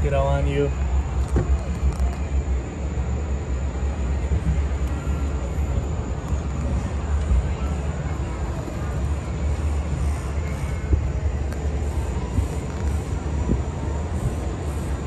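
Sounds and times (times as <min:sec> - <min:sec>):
wind buffeting microphone: 0:09.3 - 0:15.0.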